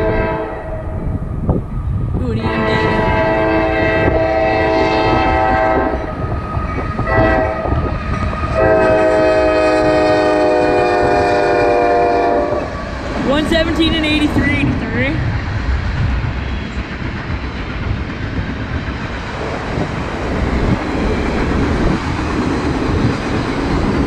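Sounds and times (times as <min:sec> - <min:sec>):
locomotive air horn blasts: 0:00.0 - 0:00.8, 0:02.4 - 0:06.1, 0:07.0 - 0:07.9, 0:08.5 - 0:12.7
low rumble of train: 0:00.0 - 0:24.0.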